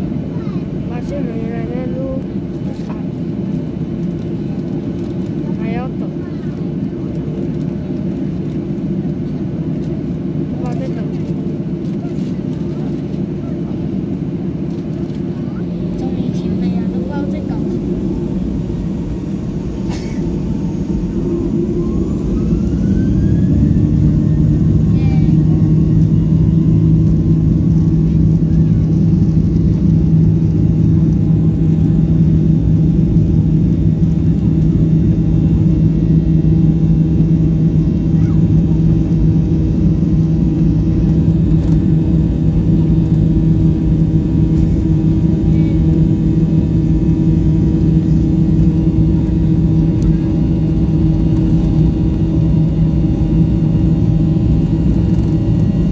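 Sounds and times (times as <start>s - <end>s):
jet engines spooling up: 14.6s - 55.9s.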